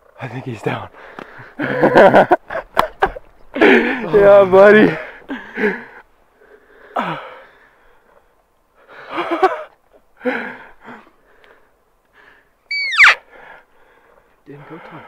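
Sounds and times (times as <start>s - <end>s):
high squeak falling in pitch: 12.7s - 13.2s.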